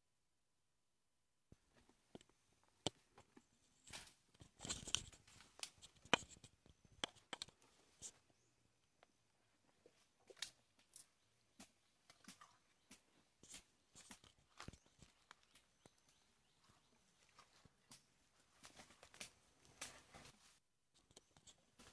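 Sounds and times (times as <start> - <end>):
leaves and twigs rustling: 10.2 - 20.6
twigs cracking: 17.4 - 20.3.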